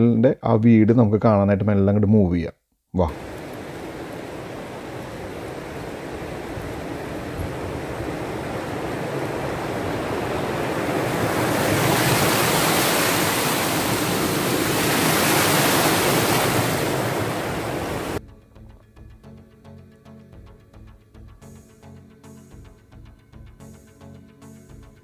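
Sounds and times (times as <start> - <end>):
wind blowing across microphone: 3.1 - 18.2
quiet music: 18.2 - 25.0.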